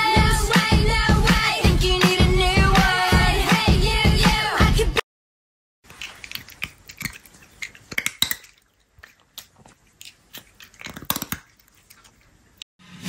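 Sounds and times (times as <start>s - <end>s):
chips being chewed: 5.9s - 12.7s.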